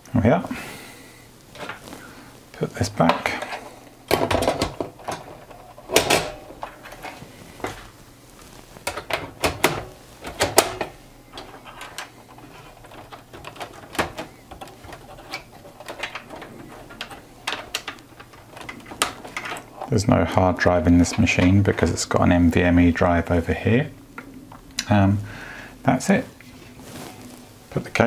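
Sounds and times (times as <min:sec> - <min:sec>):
clicks and clacks of computer parts: 0:03.0 - 0:07.2, 0:08.8 - 0:19.9.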